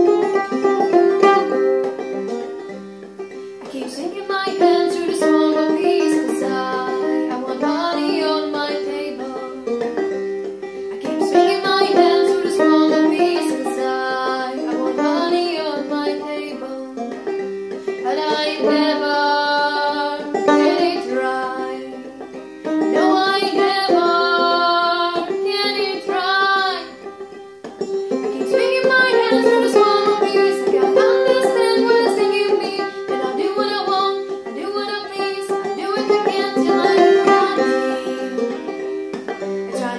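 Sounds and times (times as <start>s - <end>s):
banjo strumming: 0.0s - 39.9s
woman singing: 3.6s - 9.8s, 11.0s - 17.2s, 18.0s - 22.2s, 22.9s - 27.0s, 28.3s - 38.7s, 39.7s - 39.9s.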